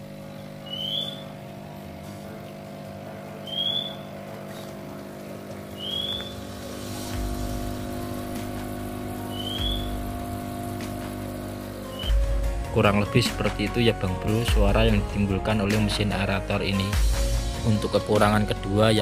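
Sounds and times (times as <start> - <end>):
air pump humming: 0.0 - 19.0
short rising chirp: 0.6 - 1.4, 3.4 - 4.2, 5.7 - 7.3, 9.1 - 10.1.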